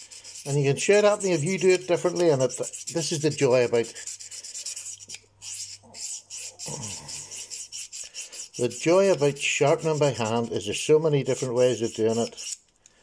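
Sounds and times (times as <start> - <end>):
knife blade rasping on sharpening plate: 3.8 - 8.6, 12.0 - 12.6.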